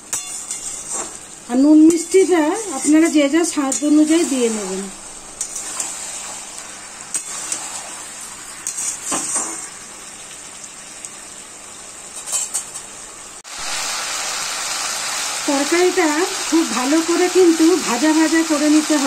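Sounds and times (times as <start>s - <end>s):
food sizzling in a pan: 0.0s - 19.0s
metal spatula scraping a pan: 0.1s - 1.2s, 1.9s - 4.8s, 5.4s - 9.7s.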